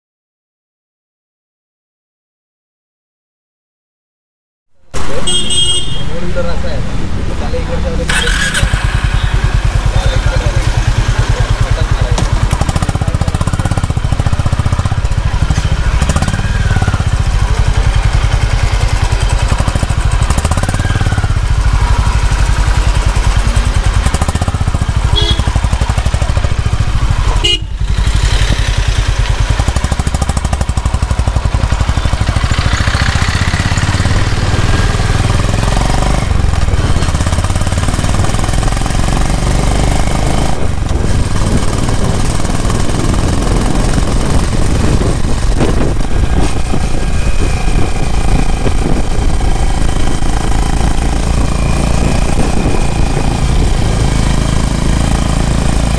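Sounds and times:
motorcycle exhaust thumping: 9.6s - 55.9s
wind buffeting microphone: 39.3s - 55.9s.

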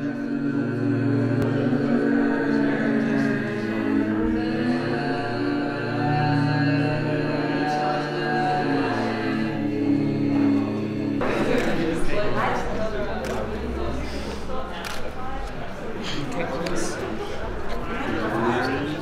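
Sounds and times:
slow synthesized drone music: 0.0s - 15.0s.

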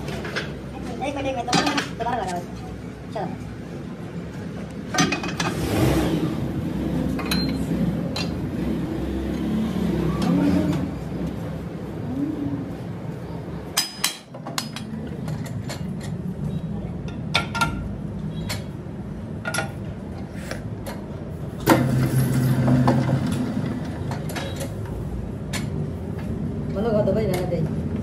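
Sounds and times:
metal clanks and knocks: 4.9s - 5.6s.

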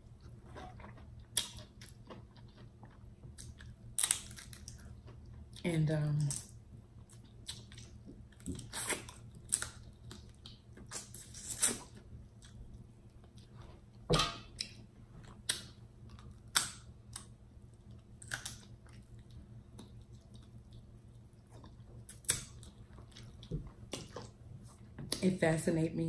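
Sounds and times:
crab shell cracking: 18.2s - 18.8s.

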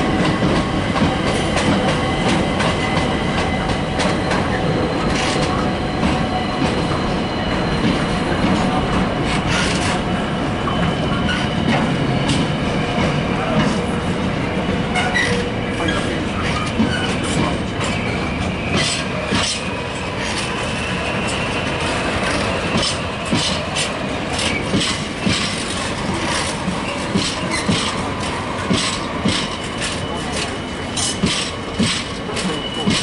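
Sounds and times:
freight train wagons rolling past: 0.0s - 33.0s
wheels clacking over rail joints: 22.2s - 33.0s.

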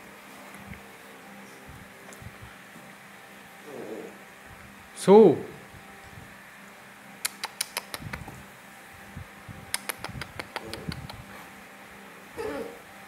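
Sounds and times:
puppy crying: 12.4s - 12.8s.

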